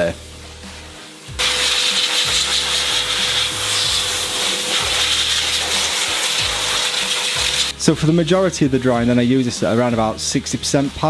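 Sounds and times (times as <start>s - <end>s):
car dryer blowing air: 1.4s - 7.7s.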